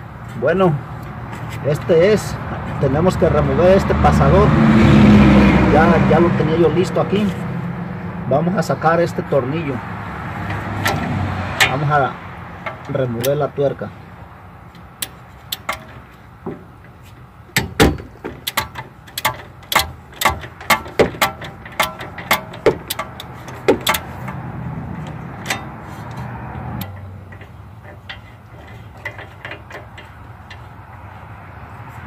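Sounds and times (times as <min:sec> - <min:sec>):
ratchet wrench clicking: 0:14.8 - 0:16.0, 0:17.6 - 0:30.7.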